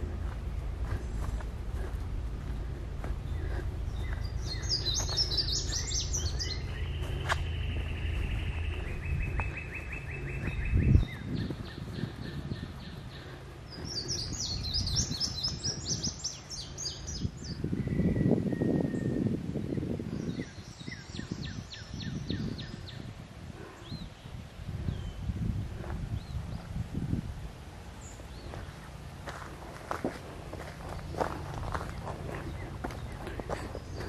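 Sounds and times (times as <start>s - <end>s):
low rumble: 0.0s - 17.7s, 24.7s - 34.0s
songbirds singing: 0.0s - 34.0s.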